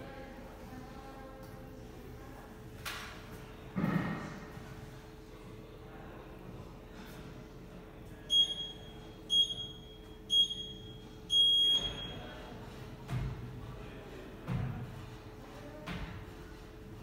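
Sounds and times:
long timer beep: 8.3s - 12.2s
short high timer beeps: 8.3s - 12.2s.

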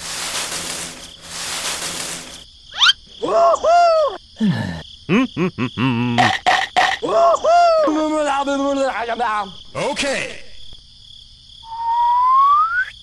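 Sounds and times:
cartoon hissing: 2.7s - 4.2s
squeaky cartoon character noises: 2.8s - 4.2s
rising whistle: 11.6s - 13.0s.

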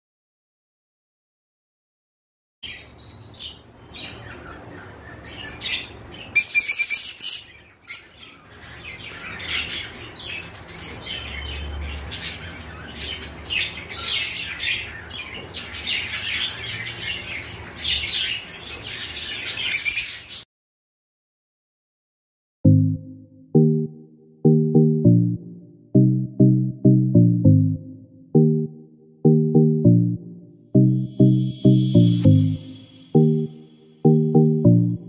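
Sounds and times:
lovebirds chirping: 30.8s - 35.0s.

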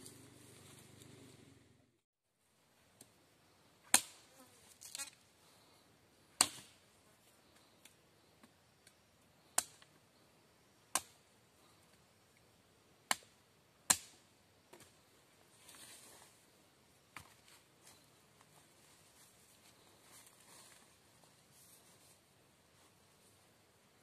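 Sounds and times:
machete chopping wood: 3.9s - 4.2s, 6.4s - 6.8s, 13.9s - 14.2s.

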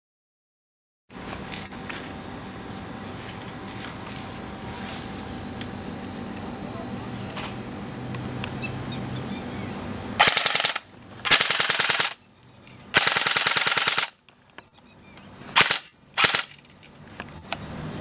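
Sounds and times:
airsoft gun firing full-auto: 10.2s - 12.2s, 12.9s - 14.2s, 15.6s - 16.6s.

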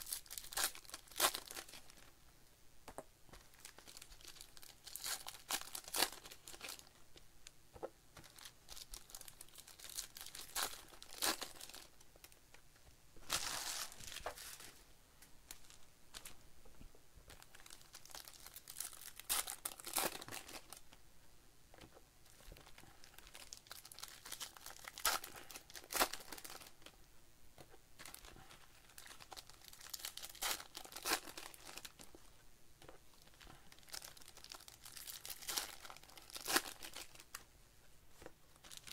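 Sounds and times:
card wrappers crinkling and tearing: 0.0s - 2.1s, 3.4s - 6.9s, 8.2s - 12.4s, 13.2s - 14.8s, 17.3s - 20.8s, 22.3s - 26.9s, 28.0s - 32.2s, 33.2s - 37.4s, 38.6s - 38.9s.

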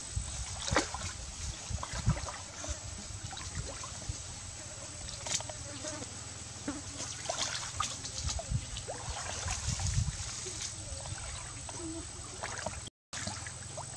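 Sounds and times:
stream water sloshing and trickling: 0.1s - 13.9s
small splashes and clicks: 5.1s - 5.6s, 12.4s - 13.9s.

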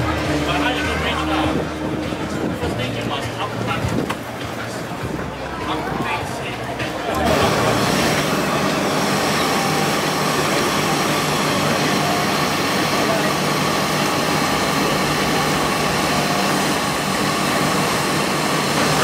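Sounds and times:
machine droning: 6.2s - 19.0s.

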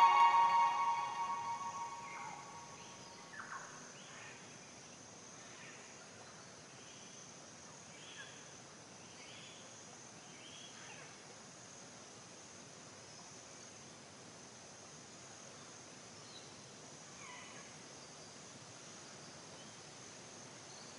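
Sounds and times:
closing music: 0.0s - 2.7s
steady high hiss: 0.0s - 3.4s.

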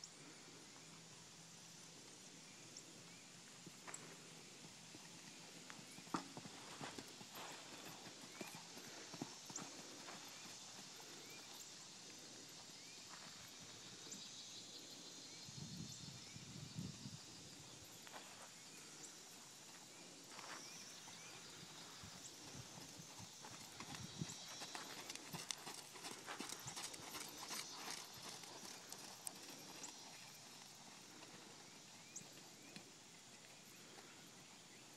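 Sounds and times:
horse hoofbeats on sand: 5.8s - 11.5s, 21.2s - 33.0s.

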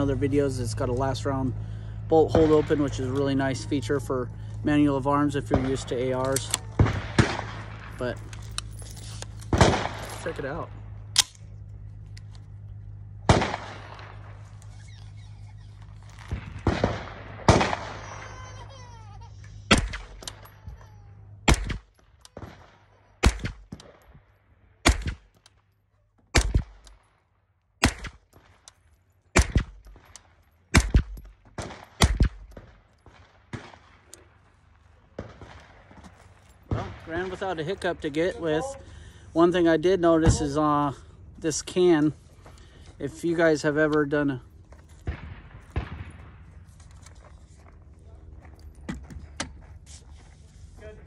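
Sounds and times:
suppressed gunshots: 1.5s - 3.4s, 5.3s - 8.6s, 9.2s - 14.7s, 15.3s - 18.3s, 19.7s - 20.5s, 21.4s - 24.1s, 24.8s - 25.4s, 26.3s - 27.1s, 27.8s - 28.7s, 29.3s - 37.5s, 45.0s - 47.1s.

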